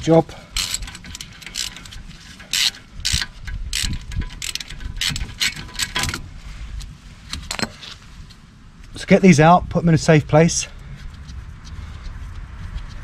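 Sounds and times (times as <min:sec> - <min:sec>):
socket ratchet clicking: 0:00.6 - 0:06.2.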